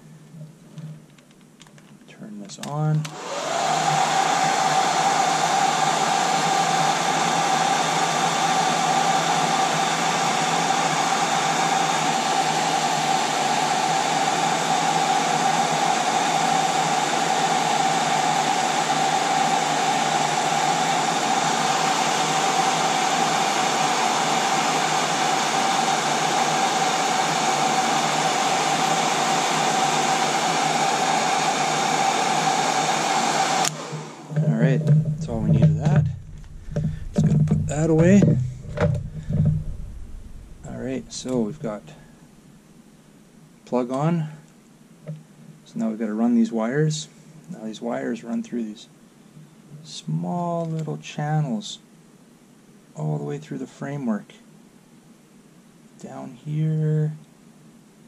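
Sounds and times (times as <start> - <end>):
motor whine: 3.0 - 7.0, 33.0 - 42.6
hair dryer blowing air: 3.0 - 42.5.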